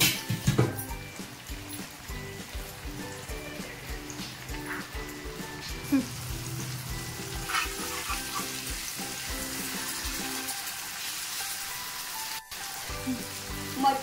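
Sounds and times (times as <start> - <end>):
background music with beat: 0.0 - 10.6
fish sizzling in oil: 0.0 - 14.0.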